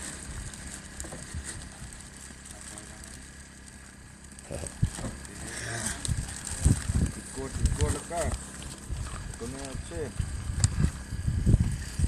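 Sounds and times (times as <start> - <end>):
wind rumble on microphone: 4.5 - 5.3, 5.9 - 12.0.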